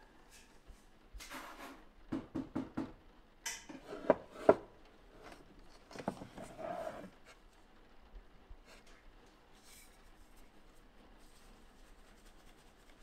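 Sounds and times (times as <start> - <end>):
plastic containers rustling: 3.8 - 7.1.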